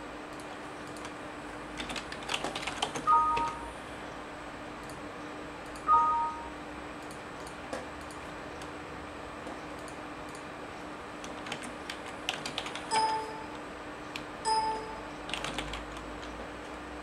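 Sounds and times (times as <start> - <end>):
steady low hum: 0.0 - 17.0
keyboard typing clicks: 1.8 - 3.6, 11.2 - 16.4
short beeps: 3.1 - 3.7, 5.9 - 6.6.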